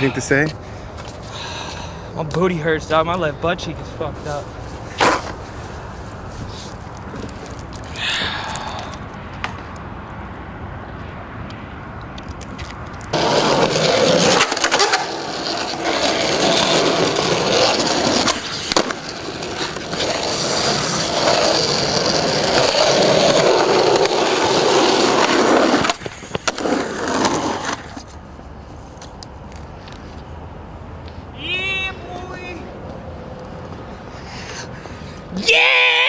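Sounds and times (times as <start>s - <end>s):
skateboard wheels rolling on asphalt: 0.2s - 36.0s
skateboard clacks: 12.3s - 28.1s.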